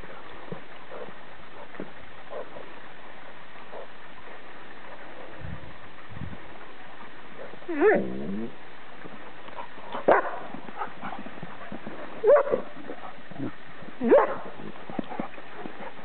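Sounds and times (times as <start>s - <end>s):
dogs yelping barks: 9.9s - 11.1s, 12.2s - 12.7s, 14.0s - 14.4s.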